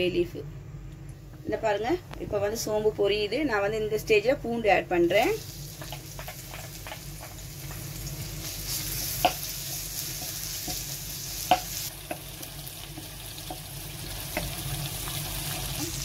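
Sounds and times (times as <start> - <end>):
spices sizzling in hot oil: 5.0 - 16.0
wooden spatula knocking on pan: 11.5 - 13.7, 14.3 - 14.6.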